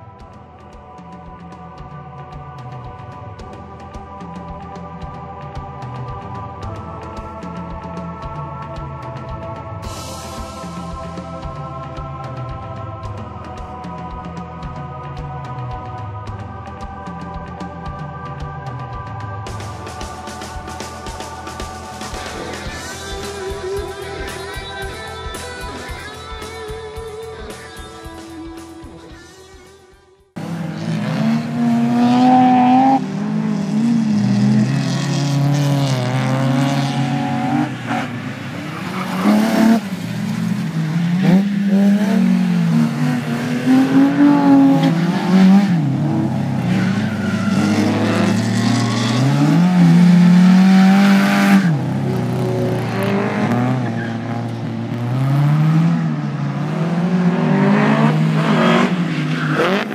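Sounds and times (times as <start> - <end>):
race car engine revving: 30.4 - 59.9.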